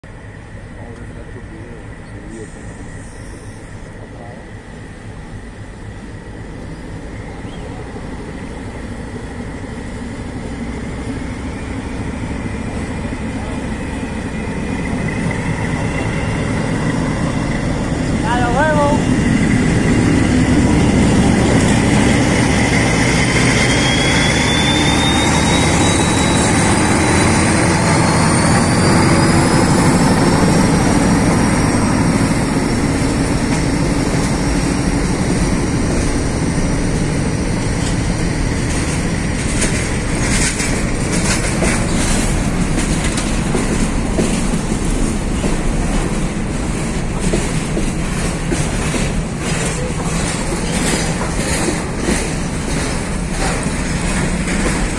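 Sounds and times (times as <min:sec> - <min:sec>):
rumble of train wagons: 0:00.0 - 0:54.9
thin rising whine: 0:19.0 - 0:33.1
wheels clacking over rail joints: 0:25.8 - 0:54.9.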